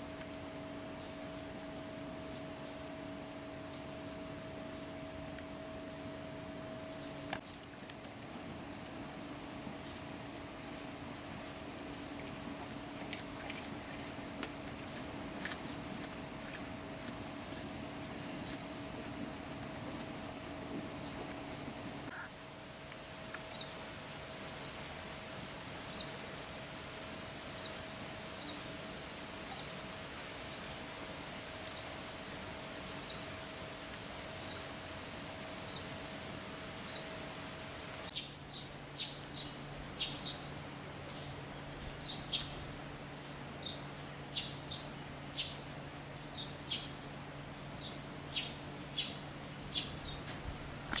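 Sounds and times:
steady background hum: 0.0s - 51.0s
small birds chirping: 8.8s - 22.3s, 23.2s - 25.0s, 25.6s - 26.3s, 27.2s - 33.4s, 34.1s - 34.8s, 35.4s - 37.2s, 37.8s - 51.0s.

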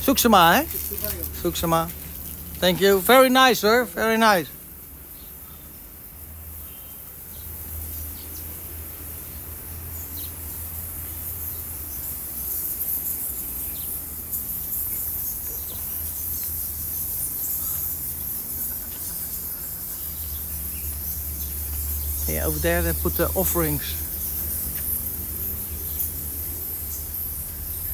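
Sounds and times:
high-pitched chirring of animals: 11.9s - 27.9s.

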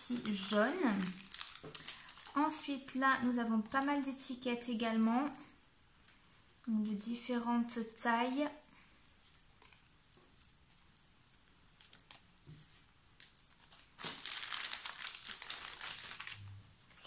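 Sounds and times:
paper crinkling: 0.0s - 2.7s, 13.2s - 17.0s.

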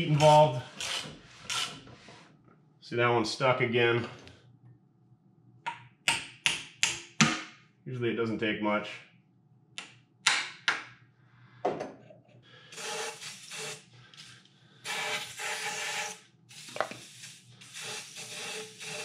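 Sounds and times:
aerosol can spraying: 12.7s - 14.3s, 14.9s - 19.0s.

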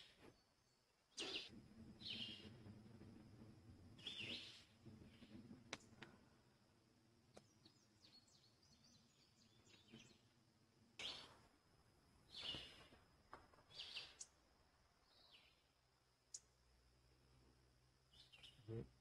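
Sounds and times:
songbirds chirping: 0.0s - 19.0s.

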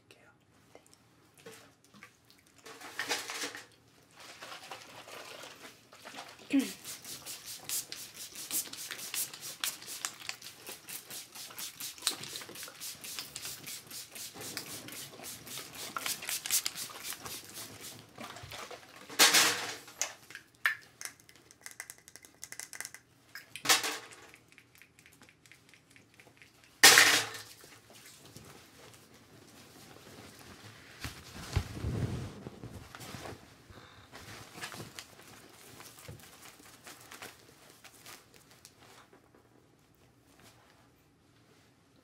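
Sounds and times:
short hissing bursts: 6.6s - 18.0s.

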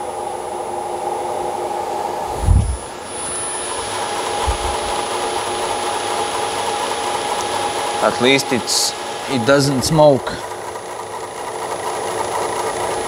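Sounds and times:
electric motor whining: 2.2s - 13.0s
low thump: 2.3s - 2.8s.

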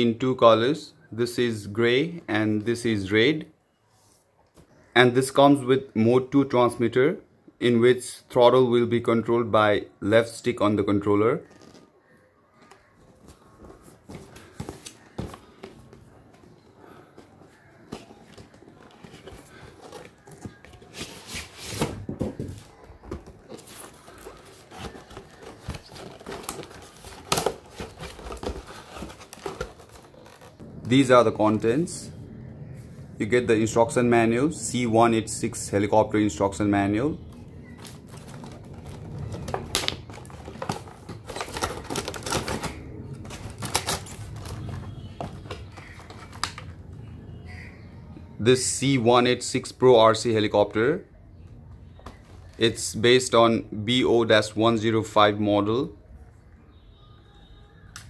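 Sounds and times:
cardboard box rustling and scraping: 17.5s - 30.6s
plastic packaging crackling: 17.6s - 31.6s, 37.2s - 47.6s.

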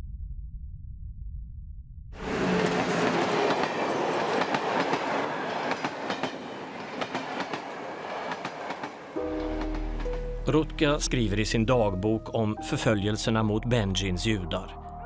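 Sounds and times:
passenger train passing: 2.2s - 12.2s
wheels clicking over rail joints: 2.3s - 10.2s.

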